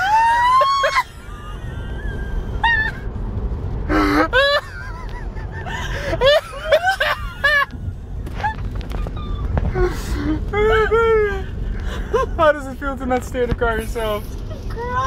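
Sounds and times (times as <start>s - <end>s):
woman squealing laughter: 0.0s - 3.1s
car road rumble: 0.0s - 15.0s.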